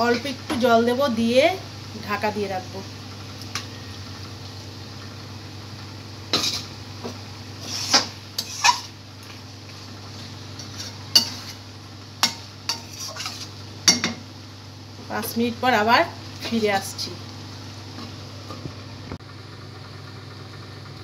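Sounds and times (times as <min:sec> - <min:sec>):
steady low hum: 0:00.0 - 0:21.0
spatula scraping metal pan: 0:07.6 - 0:08.9, 0:10.6 - 0:11.6, 0:12.2 - 0:13.5.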